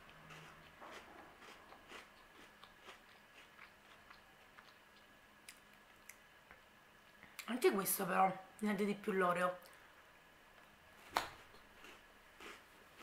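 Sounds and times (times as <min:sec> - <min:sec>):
chewing cookie crunches: 0:00.0 - 0:06.2, 0:11.5 - 0:12.6.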